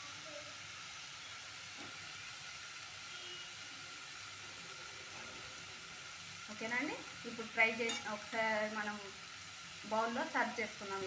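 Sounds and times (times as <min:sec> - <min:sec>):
faint hiss: 0:00.0 - 0:11.0.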